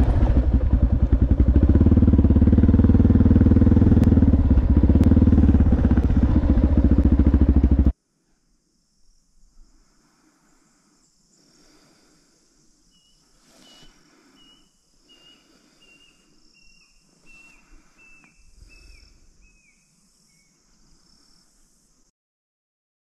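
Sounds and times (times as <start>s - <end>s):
insect hiss: 3.3s - 22.1s
bird whistling calls: 12.9s - 20.5s.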